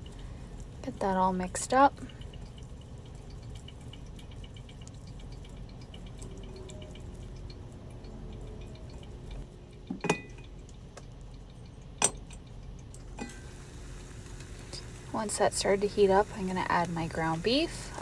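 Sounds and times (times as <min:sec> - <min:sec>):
utensil knocking on pot: 0:09.9 - 0:10.4.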